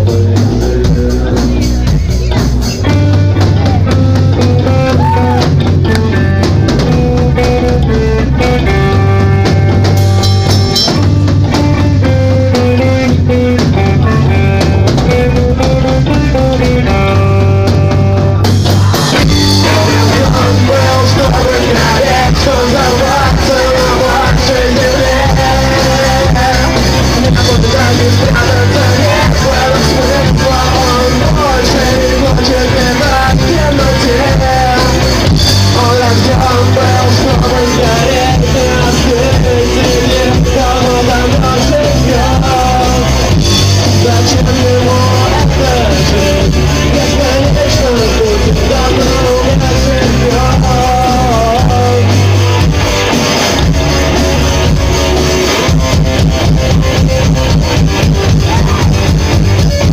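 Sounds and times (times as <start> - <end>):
rock band playing: 0.0 - 59.9
person singing into microphone: 18.7 - 52.6, 58.0 - 59.9.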